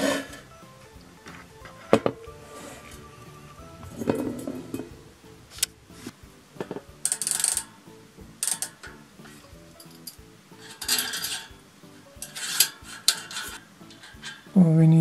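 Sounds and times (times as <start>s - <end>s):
quiet background music: 0.0s - 15.0s
metal scraping and clicking: 6.6s - 7.8s, 8.4s - 11.6s, 12.2s - 14.5s.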